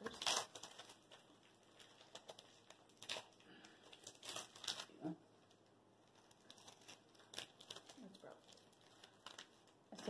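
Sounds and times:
plastic wrapper crinkling: 0:00.0 - 0:10.0.

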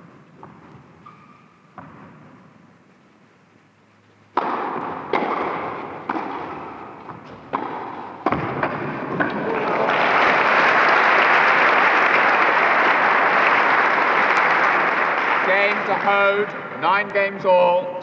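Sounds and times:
racket hitting tennis ball: 0:04.3 - 0:09.4.

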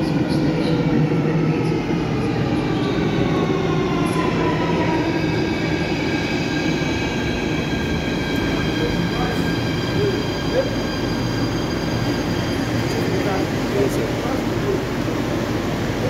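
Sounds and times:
high train whine: 0:00.0 - 0:16.0
train wheels rumbling on rails: 0:00.0 - 0:16.0.

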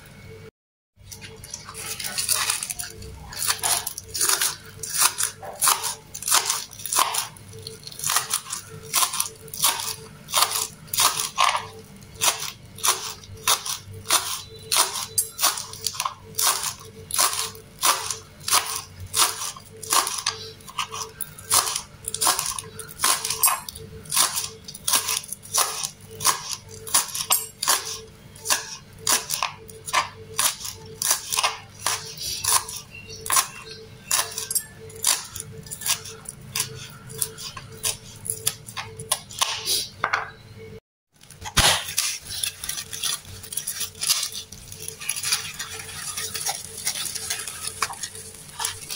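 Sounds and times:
knife chopping on plastic board: 0:03.4 - 0:07.3.

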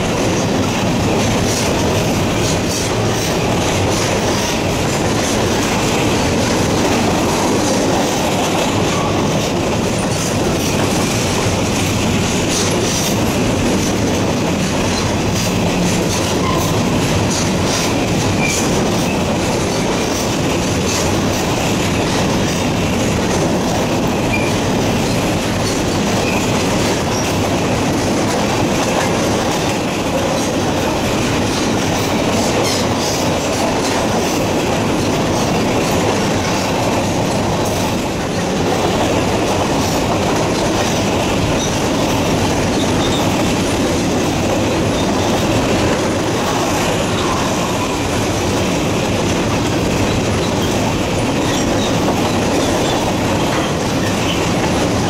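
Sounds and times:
train wheels rumbling on rail: 0:00.0 - 0:55.0
wheels clickety-clack: 0:00.0 - 0:55.0.

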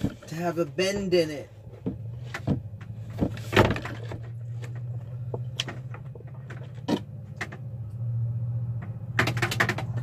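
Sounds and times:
knocks and clicks of drain hose: 0:08.8 - 0:10.0.

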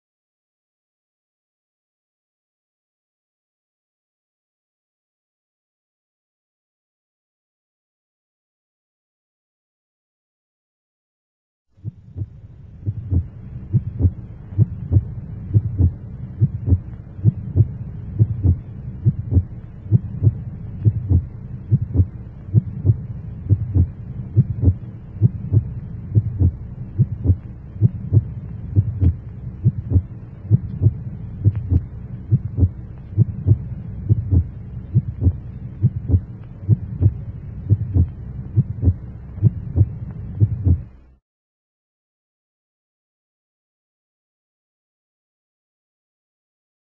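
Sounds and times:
low regular thumping pulse: 0:11.8 - 0:41.0
steady low hum: 0:11.8 - 0:41.2.

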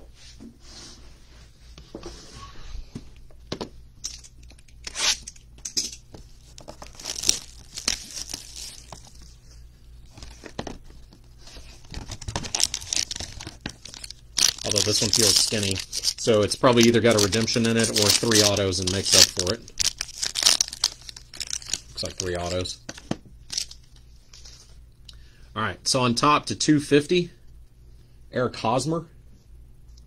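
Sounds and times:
plastic wrap tearing and crinkling: 0:06.5 - 0:09.3, 0:11.5 - 0:24.4.

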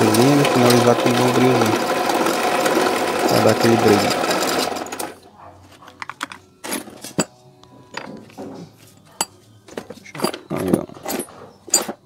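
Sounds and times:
bench drill running: 0:00.0 - 0:05.2
small metal parts clicking: 0:10.0 - 0:12.0.

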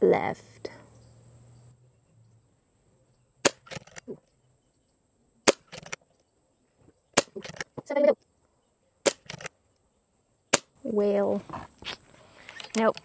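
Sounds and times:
air rifle shots: 0:03.4 - 0:04.0, 0:05.4 - 0:06.0, 0:09.0 - 0:09.5, 0:10.5 - 0:10.7.

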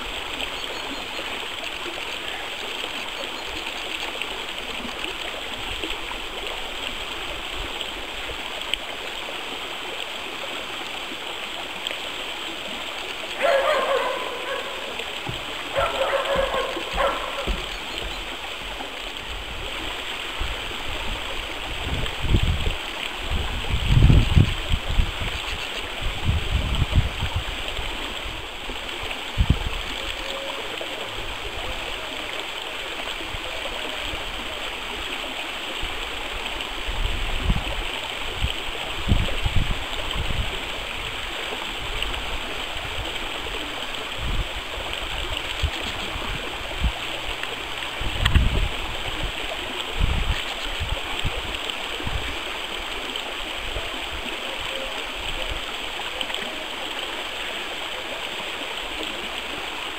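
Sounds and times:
stream flowing over stones: 0:00.0 - 0:59.9
low thumps on microphone: 0:16.3 - 0:17.7.

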